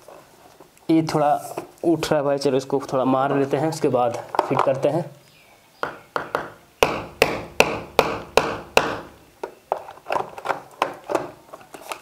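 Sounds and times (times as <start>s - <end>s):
hammer striking nail: 5.8s - 9.2s.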